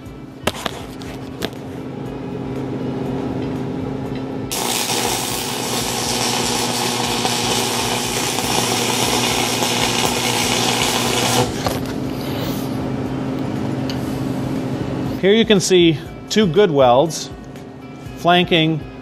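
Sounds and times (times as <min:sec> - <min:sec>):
low hum: 0:00.0 - 0:15.2
welding arc crackling: 0:00.4 - 0:01.0, 0:04.5 - 0:12.0.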